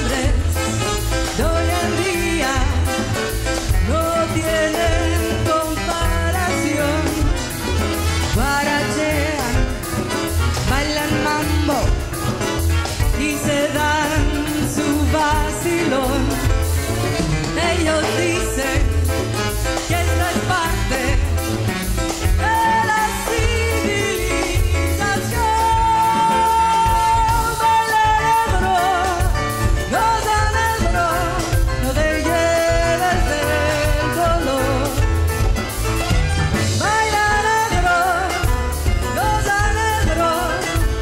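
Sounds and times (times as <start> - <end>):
bass: 0.0 - 41.0
drum kit: 0.0 - 41.0
trumpet and trombone: 0.0 - 41.0.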